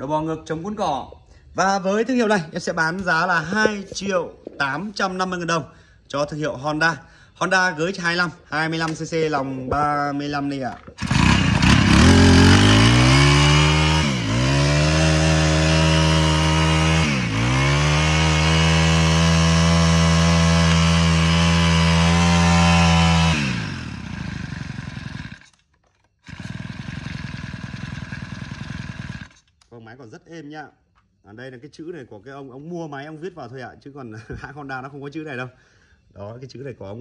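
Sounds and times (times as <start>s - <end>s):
brush cutter engine running: 10.9s - 29.6s.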